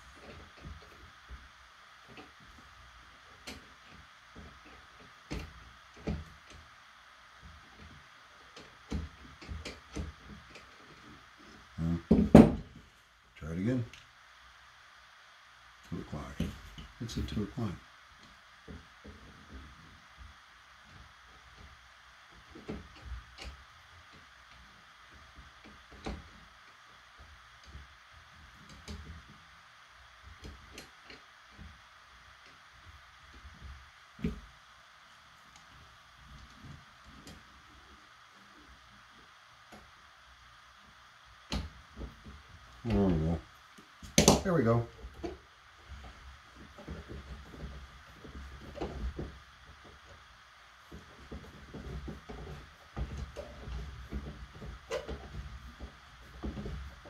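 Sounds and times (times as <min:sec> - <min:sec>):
faint steady hiss: 0:00.0 - 0:57.0.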